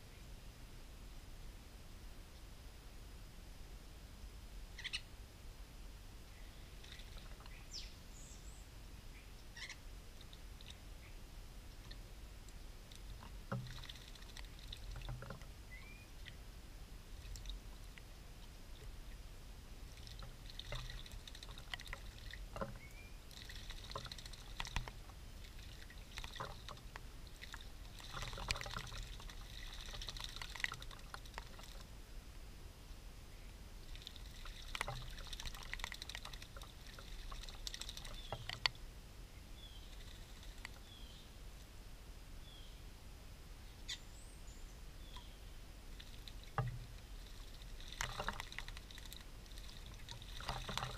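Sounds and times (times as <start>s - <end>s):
birds splashing in water: 6.6s - 7.9s, 12.8s - 19.2s, 19.8s - 31.9s, 33.8s - 38.8s, 39.6s - 41.2s, 45.0s - 50.9s.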